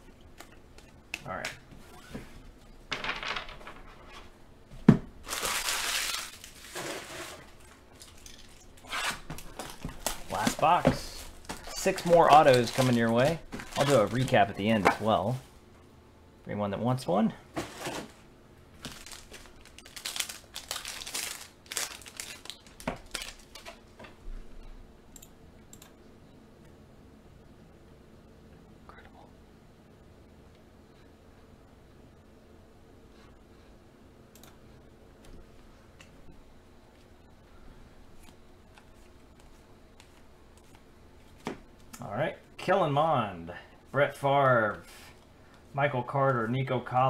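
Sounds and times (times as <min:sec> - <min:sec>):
foil wrappers crinkling: 0:05.2 - 0:15.2, 0:18.8 - 0:23.8.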